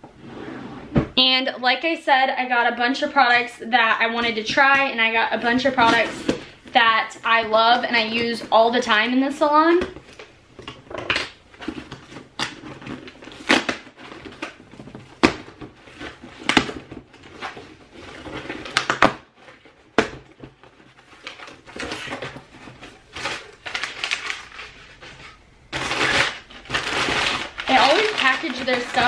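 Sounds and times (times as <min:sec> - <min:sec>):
packing paper rustling: 0:10.0 - 0:29.0
packing tape ripping: 0:11.0 - 0:19.2, 0:21.2 - 0:25.0, 0:25.7 - 0:29.0.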